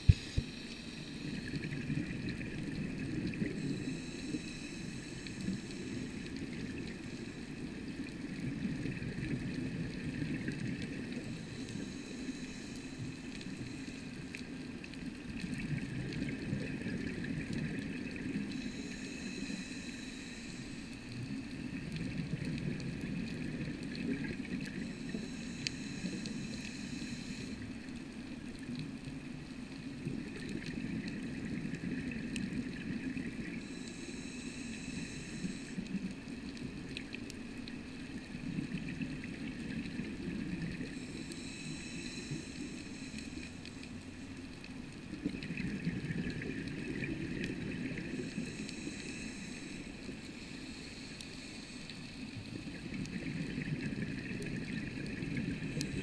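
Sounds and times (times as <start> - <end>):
regulator hiss: 0.0 - 8.0, 10.4 - 14.6, 17.2 - 21.8, 24.5 - 27.9, 32.6 - 36.0, 39.8 - 44.4, 47.8 - 53.3
underwater breathing bubbles: 0.0 - 28.0, 29.8 - 56.0.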